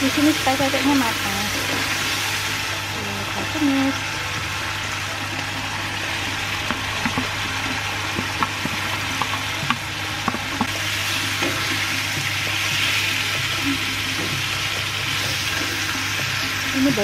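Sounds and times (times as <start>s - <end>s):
paste sizzling in a frying pan: 0.0s - 17.0s.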